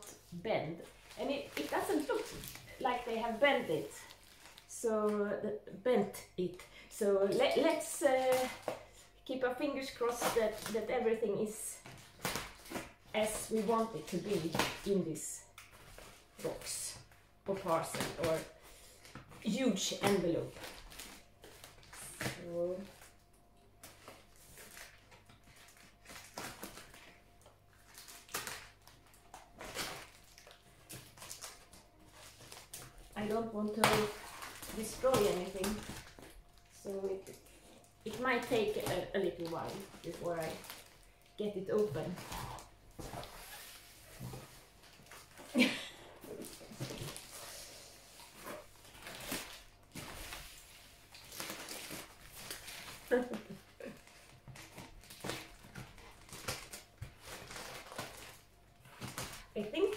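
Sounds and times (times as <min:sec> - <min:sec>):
cardboard rustling and scraping: 0:41.7 - 0:45.4.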